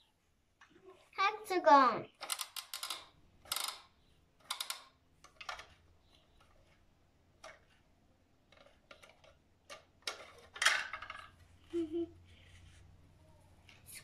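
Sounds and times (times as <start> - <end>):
plastic toy clicks and taps: 2.2 - 5.8.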